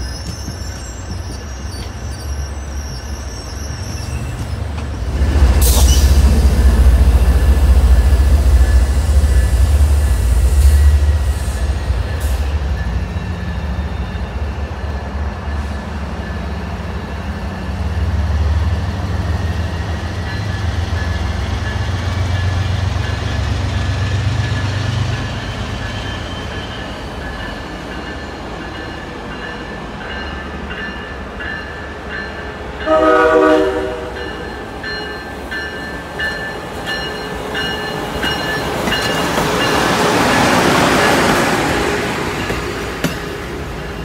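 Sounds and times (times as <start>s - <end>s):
high wheel squeal: 0.0s - 4.7s
train rumble: 0.0s - 44.0s.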